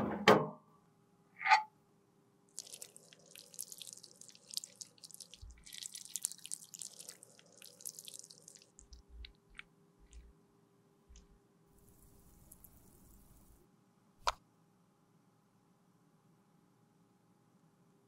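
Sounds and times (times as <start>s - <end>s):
thick liquid trickling: 2.6s - 10.3s.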